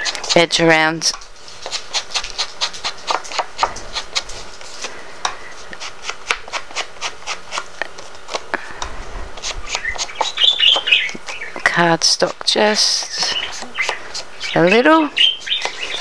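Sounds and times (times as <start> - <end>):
ink dauber rubbing on card: 9.2 - 11.5.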